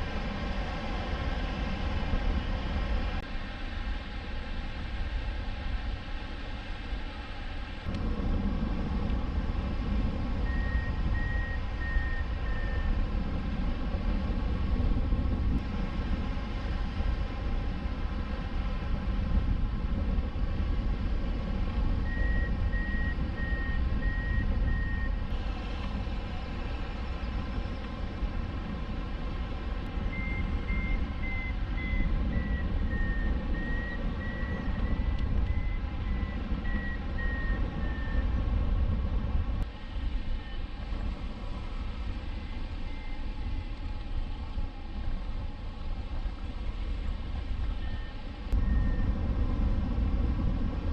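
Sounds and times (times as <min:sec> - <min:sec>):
wind over microphone: 0:00.0 - 0:50.9
variometer high beeps: 0:10.4 - 0:13.0, 0:22.0 - 0:25.2, 0:30.1 - 0:38.2, 0:47.8 - 0:49.2.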